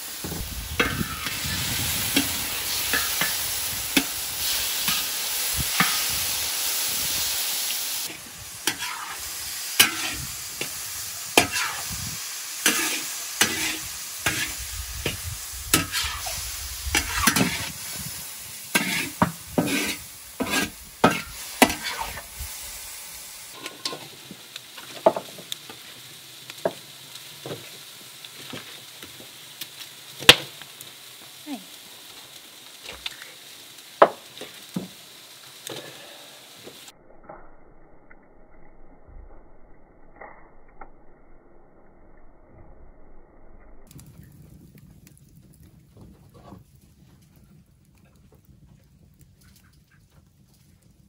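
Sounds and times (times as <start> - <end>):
food sizzling in wok: 0.0 - 37.0
wood fire crackling: 0.0 - 37.0, 43.8 - 51.0
spatula scraping in wok: 0.8 - 6.4, 8.0 - 22.6.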